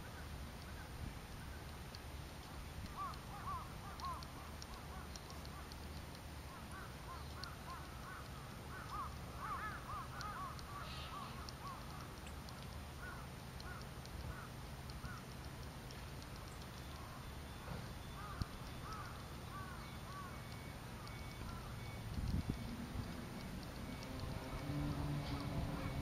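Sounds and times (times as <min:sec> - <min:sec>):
low steady rumble: 0:00.0 - 0:26.0
finch twittering: 0:16.4 - 0:22.8.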